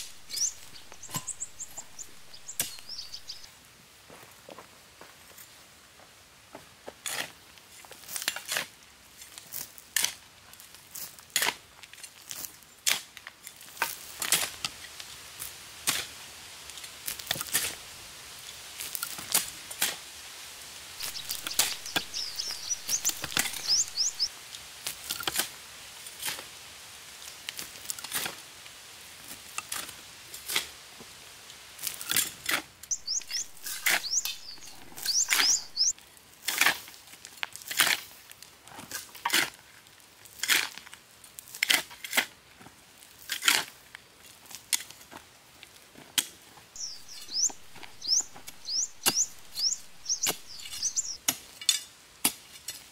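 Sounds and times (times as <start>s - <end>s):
bird chirping: 0.0s - 3.5s, 21.0s - 24.3s, 32.9s - 35.9s, 46.8s - 51.2s.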